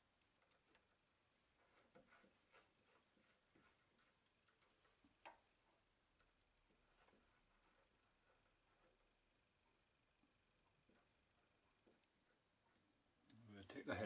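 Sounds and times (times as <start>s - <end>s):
faint clicks and metal taps: 0.0s - 13.4s.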